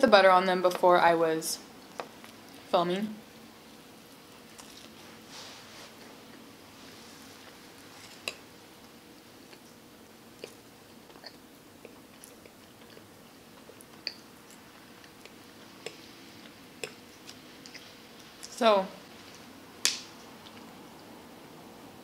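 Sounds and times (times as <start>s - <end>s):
close-up chewing: 4.3s - 5.2s, 7.4s - 8.5s, 9.4s - 18.5s.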